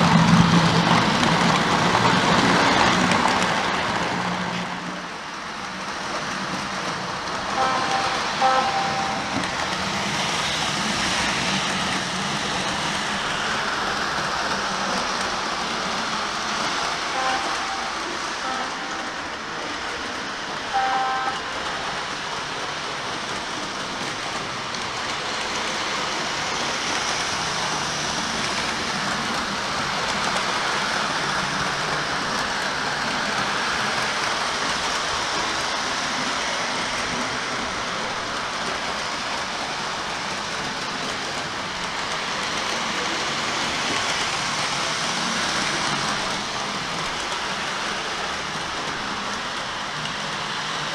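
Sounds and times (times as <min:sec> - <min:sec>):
model train rolling on track: 0:00.0 - 0:50.9
model train horn toots: 0:07.5 - 0:09.4, 0:17.1 - 0:19.1, 0:20.7 - 0:21.9.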